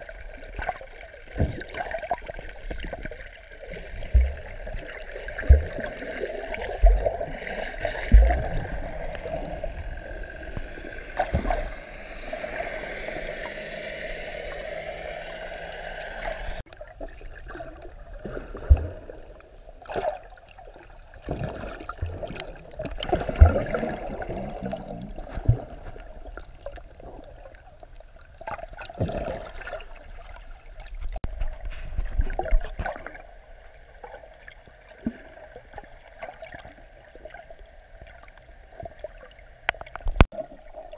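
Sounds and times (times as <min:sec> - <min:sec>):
underwater moving water: 0:00.0 - 0:40.9
dull low thumps: 0:05.4 - 0:05.8, 0:08.0 - 0:11.8.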